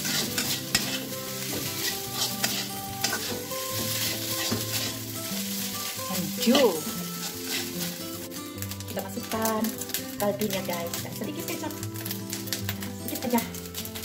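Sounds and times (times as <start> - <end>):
spatula scraping a wok: 0.0 - 10.2
oil sizzling: 0.0 - 14.0.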